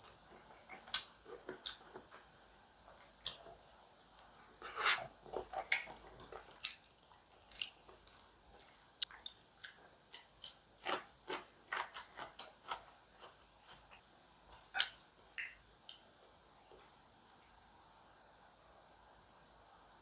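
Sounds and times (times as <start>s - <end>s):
person chewing food: 0.0s - 16.1s.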